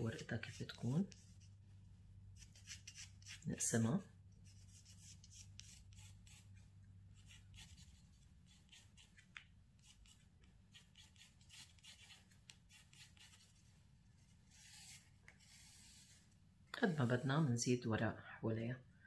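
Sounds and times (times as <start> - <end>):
pencil scratching on paper: 2.4 - 3.5, 4.4 - 6.6, 7.2 - 9.2, 9.8 - 13.6.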